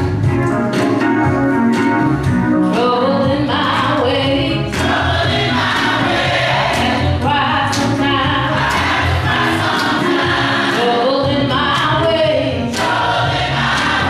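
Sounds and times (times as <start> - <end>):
electronic keyboard: 0.0 - 14.0
gospel choir singing: 4.6 - 7.3, 8.3 - 11.6, 12.6 - 14.0.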